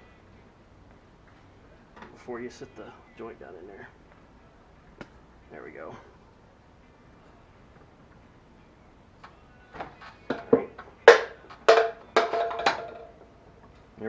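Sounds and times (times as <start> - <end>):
metal knocks and clunks: 10.3 - 13.1.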